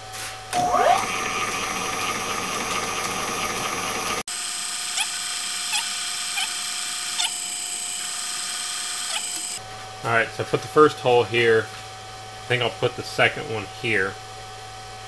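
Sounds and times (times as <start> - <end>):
drill press whirring: 0.5 - 9.6.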